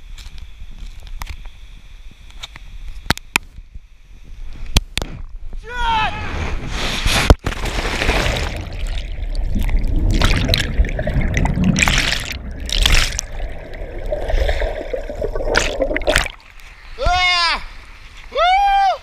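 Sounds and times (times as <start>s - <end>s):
underwater rushing and bubbling: 8.0s - 17.0s.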